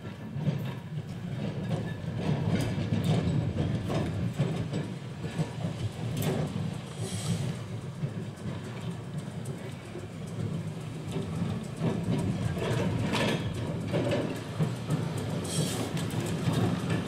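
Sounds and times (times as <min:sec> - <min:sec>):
tram running rumble: 0:00.0 - 0:17.0
tram wheels clicking over rail joints: 0:00.0 - 0:17.0.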